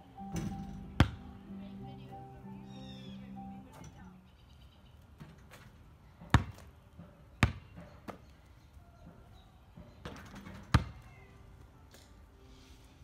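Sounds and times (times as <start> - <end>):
basketball knocking hoop: 0.3 - 1.2, 6.3 - 6.7
basketball bouncing on asphalt: 0.9 - 1.3, 5.2 - 8.3, 10.0 - 11.0.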